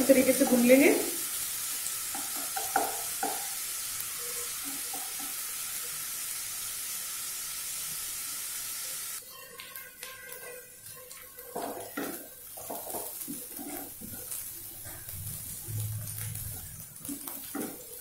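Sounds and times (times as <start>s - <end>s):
onion and garlic sizzling in oil: 0.0s - 18.0s
wooden spatula knocking on pan: 2.1s - 3.5s.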